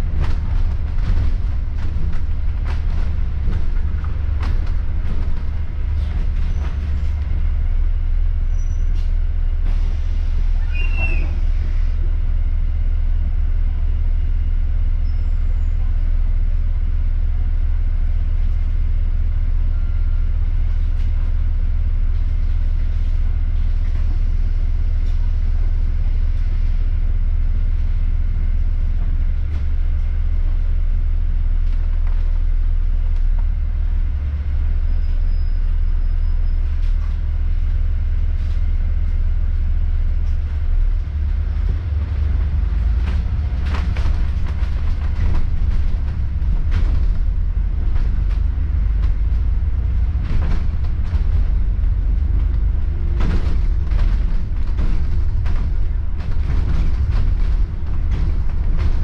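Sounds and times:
rattles: 0:00.0 - 0:07.7, 0:41.6 - 0:59.0
bus engine rumble: 0:00.0 - 0:59.0
short high squeal: 0:08.5 - 0:09.0, 0:10.6 - 0:11.5, 0:34.9 - 0:36.6.

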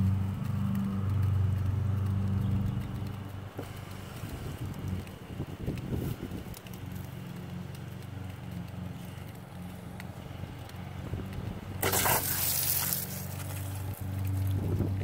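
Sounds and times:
water spraying with a hiss: 0:03.6 - 0:05.0, 0:11.7 - 0:14.6.

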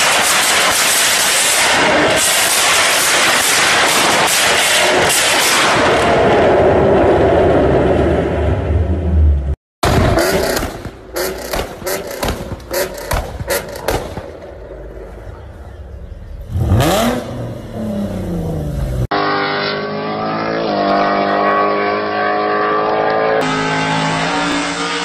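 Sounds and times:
car engine popping and crackling: 0:00.0 - 0:05.8, 0:09.8 - 0:19.1
car engine revving: 0:00.0 - 0:25.0.

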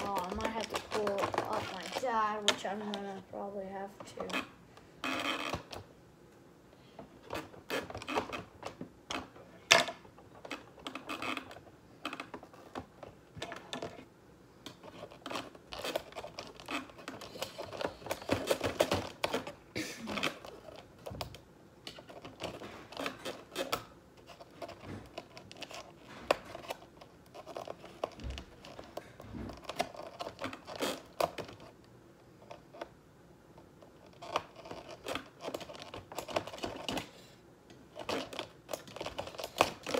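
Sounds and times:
rubbing noises: 0:00.0 - 0:03.3.

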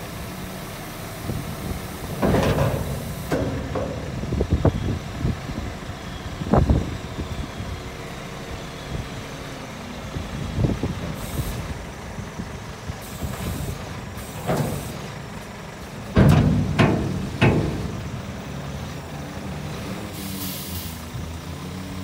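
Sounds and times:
diesel truck engine running: 0:00.0 - 0:22.0
air hisses: 0:11.2 - 0:11.8, 0:20.1 - 0:21.1.

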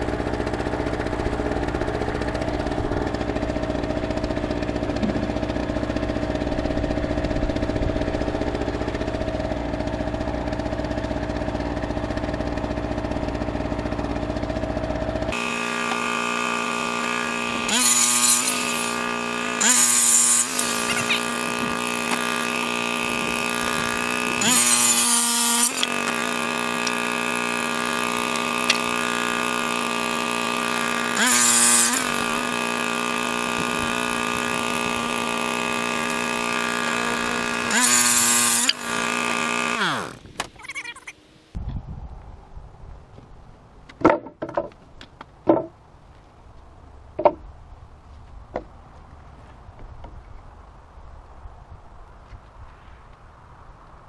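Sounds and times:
engine humming: 0:00.0 - 0:54.0
circular saw cutting boards: 0:08.1 - 0:41.2.

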